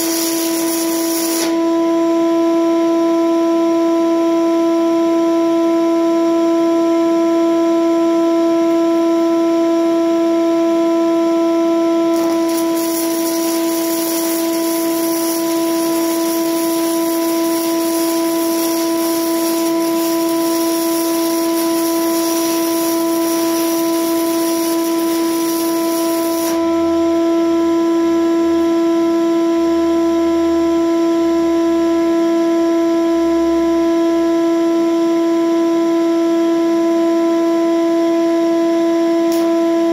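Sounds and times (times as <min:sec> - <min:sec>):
welding arc crackling: 0:00.0 - 0:01.6, 0:12.1 - 0:26.6, 0:39.3 - 0:39.5
shop vacuum whining: 0:00.0 - 0:02.9, 0:11.2 - 0:27.5, 0:39.0 - 0:39.9.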